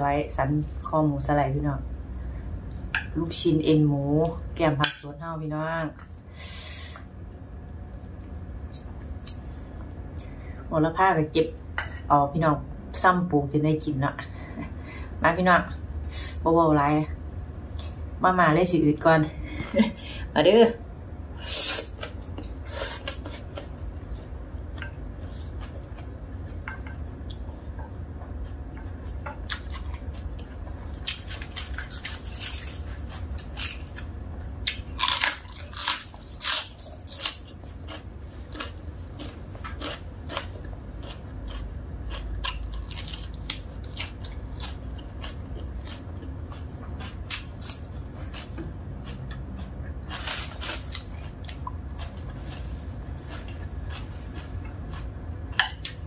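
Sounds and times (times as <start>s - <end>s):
low hum: 0.0s - 56.0s
wet chewing: 21.9s - 56.0s
crunchy bites: 34.7s - 46.1s.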